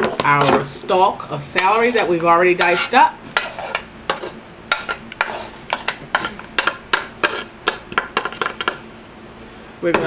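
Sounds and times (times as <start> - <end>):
spatula scraping plastic bowl: 1.6 - 8.8.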